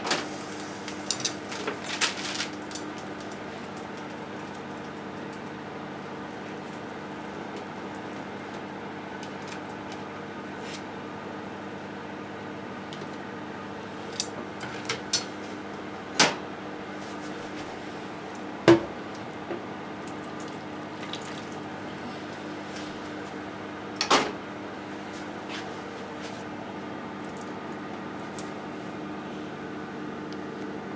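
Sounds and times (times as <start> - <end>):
hot water pouring into a sink: 20.0 - 21.7.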